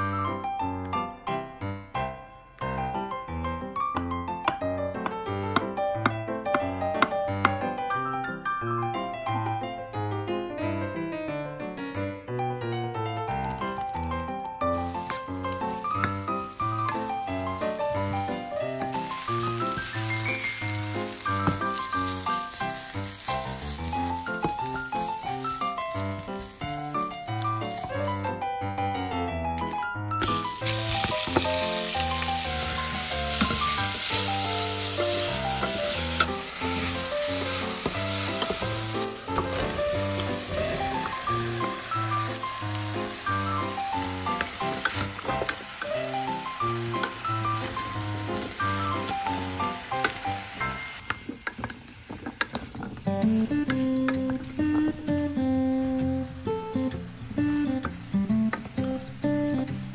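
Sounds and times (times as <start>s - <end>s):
piano music: 0.0s - 59.9s
meat sizzling in oil: 14.6s - 28.3s, 30.2s - 55.8s.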